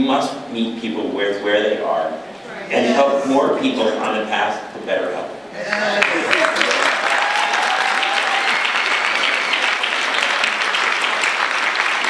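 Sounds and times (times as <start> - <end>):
large audience applauding: 5.7 - 12.0.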